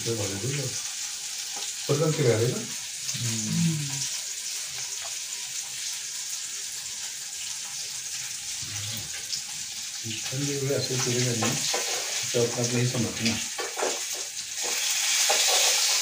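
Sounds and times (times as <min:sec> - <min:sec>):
person speaking: 0:03.2 - 0:04.0
steady hiss: 0:08.2 - 0:16.0.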